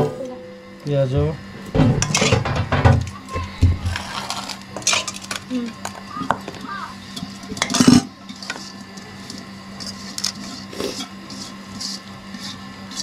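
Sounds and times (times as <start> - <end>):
steady low hum: 0.0 - 13.0
soft scrapes and rustles: 3.8 - 4.9.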